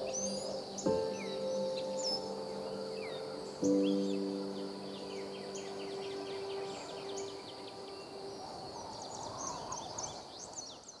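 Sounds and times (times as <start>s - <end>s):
sustained music chord: 0.0s - 8.4s
birds chirping: 0.0s - 11.0s.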